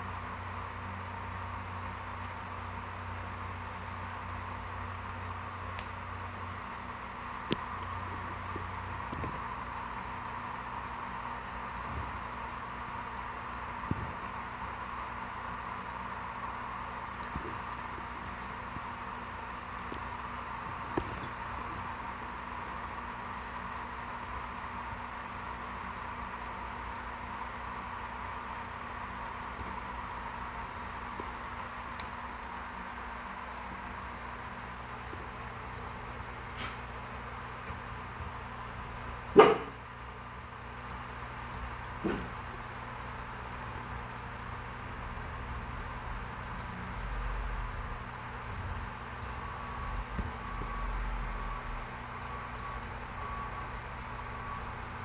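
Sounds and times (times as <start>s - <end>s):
cricket chirping: 0.0s - 55.0s.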